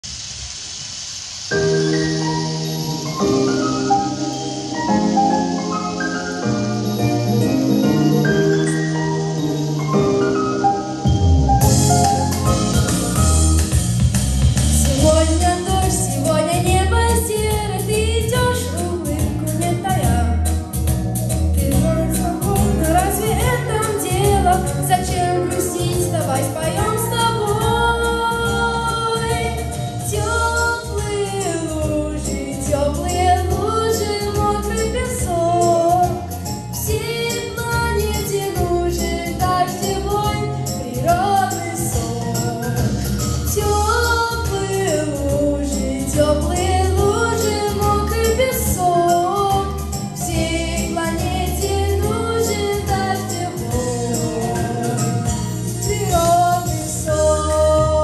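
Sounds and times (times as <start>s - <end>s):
backing music with bass beat: 0.0s - 58.0s
boy singing into microphone: 14.8s - 20.4s, 21.6s - 42.8s, 43.5s - 58.0s.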